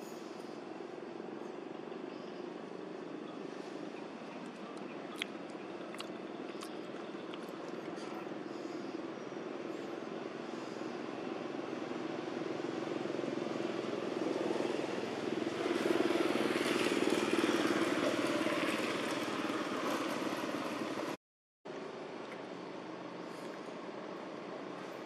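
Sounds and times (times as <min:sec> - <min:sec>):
passing motor vehicle engine: 0:09.6 - 0:21.2.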